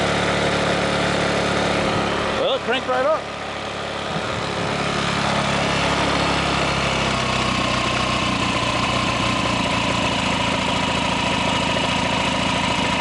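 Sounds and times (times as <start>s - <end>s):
scooter engine idling: 0.0s - 13.0s.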